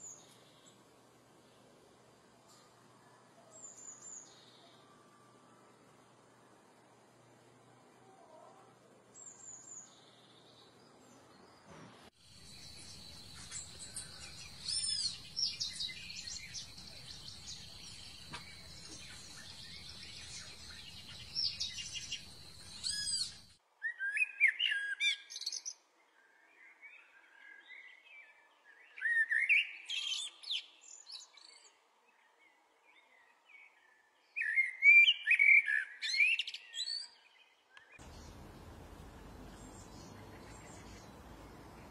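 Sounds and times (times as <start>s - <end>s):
birds chirping and trilling: 9.2s - 25.7s, 34.3s - 41.9s
steady high-pitched hum: 12.2s - 23.6s.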